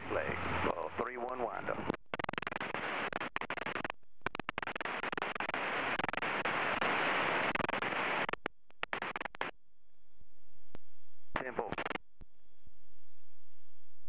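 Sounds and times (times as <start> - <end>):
radio hiss and crackle: 0.0 - 9.6, 10.7 - 12.0
scattered clicks: 1.2 - 6.4, 7.5 - 9.5.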